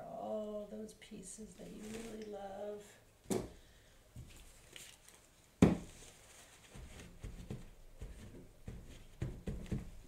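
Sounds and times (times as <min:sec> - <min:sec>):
tissue rubbing on paper: 0:05.9 - 0:08.3.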